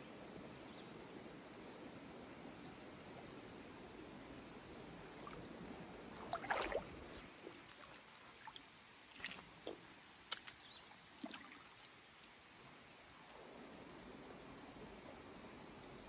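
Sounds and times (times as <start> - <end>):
water splashing and gurgling: 5.1 - 12.4.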